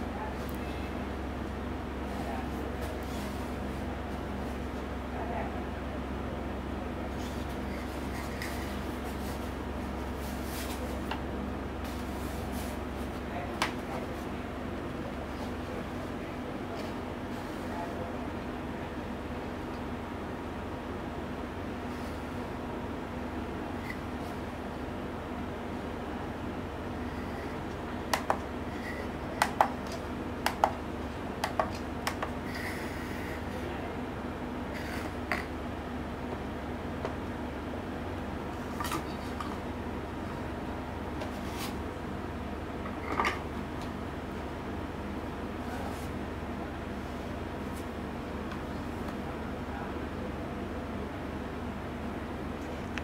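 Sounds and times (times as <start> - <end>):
steady low hum: 0.0 - 53.0
soft handling rustle: 7.1 - 11.1.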